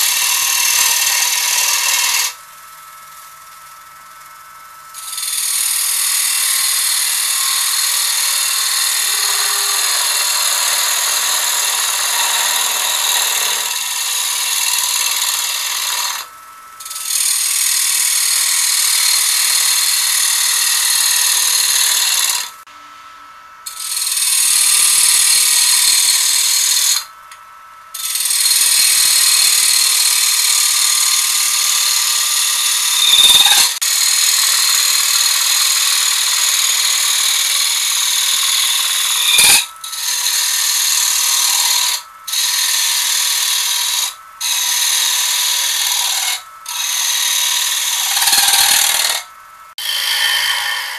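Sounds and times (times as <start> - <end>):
tool scraping wood: 0.0 - 2.4, 5.0 - 22.6, 31.7 - 34.0, 37.2 - 50.9
wood lathe gouge cutting shavings: 0.0 - 2.4, 5.0 - 22.6, 23.7 - 27.1, 28.0 - 50.9.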